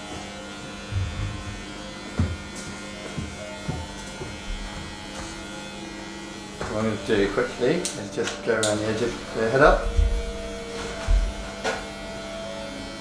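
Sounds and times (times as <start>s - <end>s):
electric hair clippers buzzing: 0.0s - 13.0s
soft low thumps: 9.7s - 11.4s.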